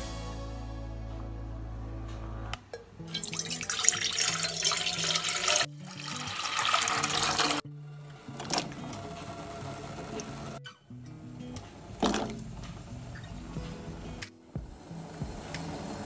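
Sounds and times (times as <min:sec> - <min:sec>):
water pouring into metal pot: 0:03.1 - 0:07.6, 0:08.4 - 0:08.8.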